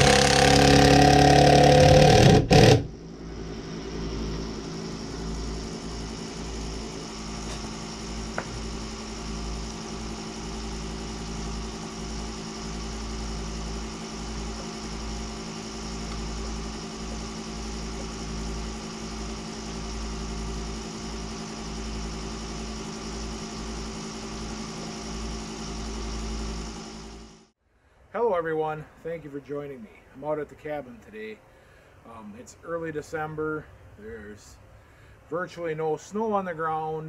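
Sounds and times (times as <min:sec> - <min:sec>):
generator engine running: 0:00.0 - 0:27.5.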